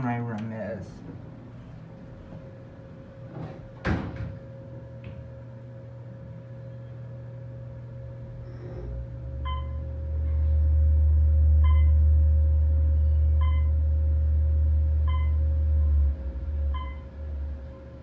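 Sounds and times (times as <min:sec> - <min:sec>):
elevator motor hum: 0:00.0 - 0:18.0.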